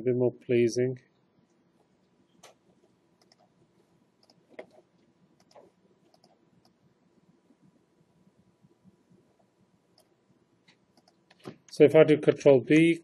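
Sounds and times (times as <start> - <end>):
mouse and keyboard clicks: 3.2 - 3.5, 4.2 - 6.8, 10.0 - 11.6.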